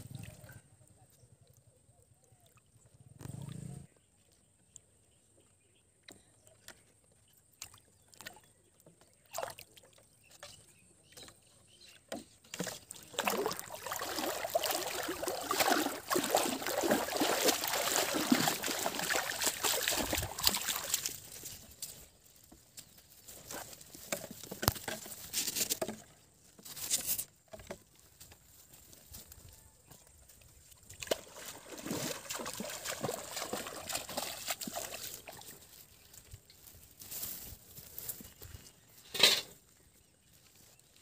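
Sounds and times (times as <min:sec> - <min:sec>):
muddy water splashing: 0:07.4 - 0:11.3, 0:12.4 - 0:38.6.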